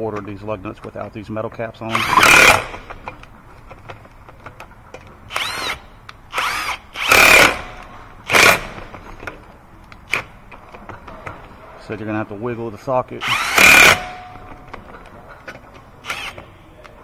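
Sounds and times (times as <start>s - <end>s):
impact wrench spinning lug nuts: 1.9s - 3.2s, 5.3s - 9.2s, 13.2s - 14.8s.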